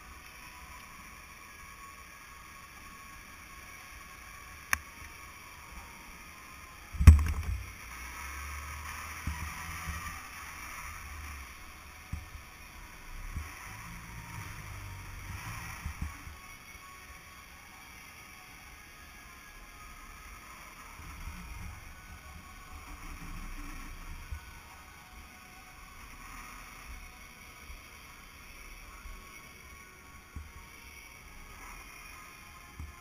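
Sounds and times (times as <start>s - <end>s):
loud thump: 7.0s - 7.6s.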